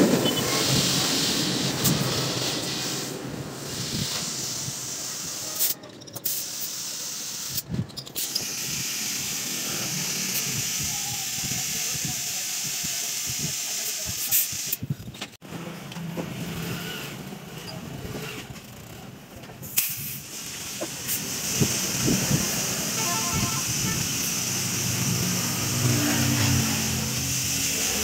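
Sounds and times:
compressed air hissing from hose: 0.4 - 15.0, 19.6 - 28.0
motor hum: 21.3 - 28.0.

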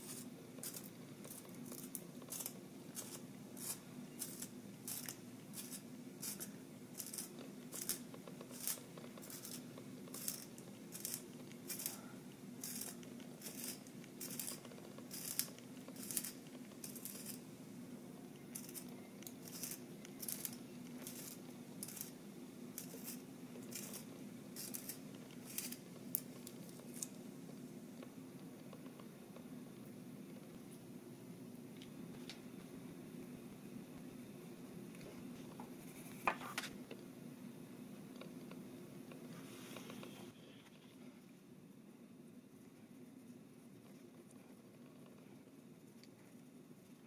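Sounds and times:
pencil sharpener scraping: 12.6 - 17.4, 22.8 - 25.8.

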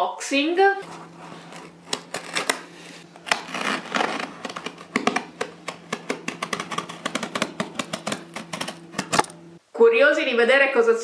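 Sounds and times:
cardboard box crinkling and scraping: 0.8 - 5.2.

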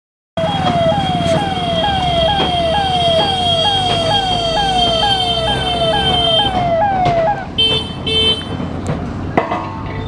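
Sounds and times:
steady high tone: 0.4 - 7.5
ambulance siren: 0.4 - 7.7
low vehicle rumble: 0.4 - 10.0.

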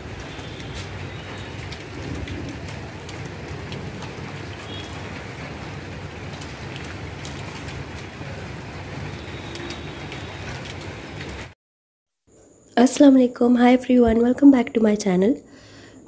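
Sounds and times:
light rain drizzling: 0.0 - 11.6.

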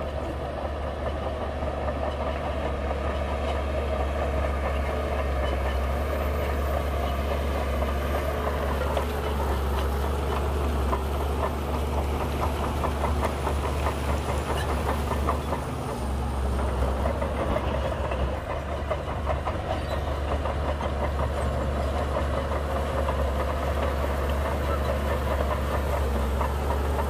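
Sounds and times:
bulldozer diesel engine droning: 0.0 - 27.0
bulldozer tracks clattering: 0.0 - 27.0.

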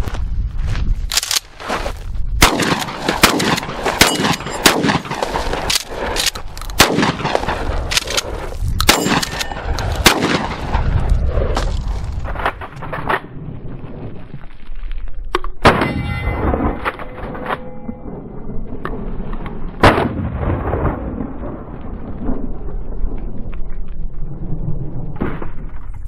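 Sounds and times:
shotgun firing: 2.4 - 10.9, 15.6 - 16.8, 19.8 - 21.0
steel plate targets ringing: 4.0 - 4.7, 8.9 - 9.8, 15.6 - 18.7.

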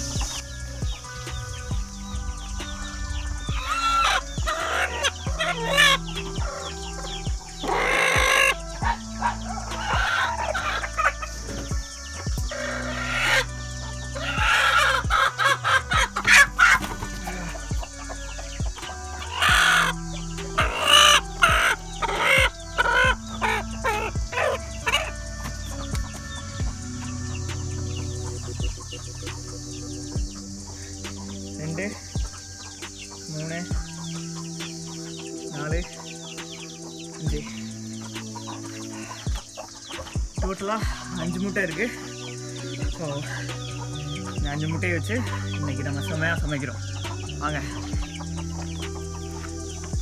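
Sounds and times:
hens clucking and squawking: 0.0 - 50.0
rooster crowing: 2.4 - 26.6.

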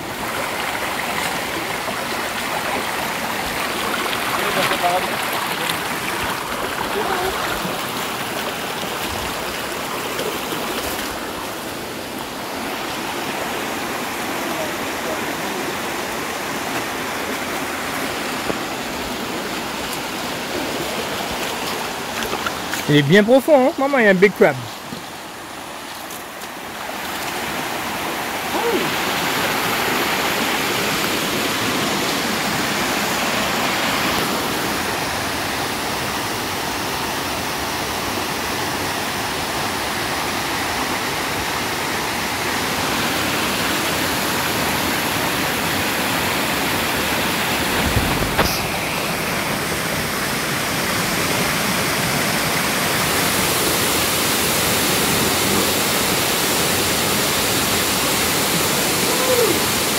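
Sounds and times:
waterfall rushing: 0.0 - 59.9
brief thump: 47.8 - 48.7.

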